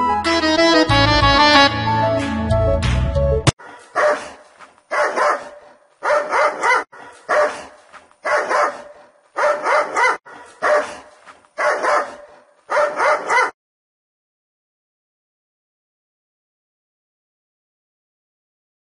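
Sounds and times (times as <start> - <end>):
dog barking: 3.6 - 13.6.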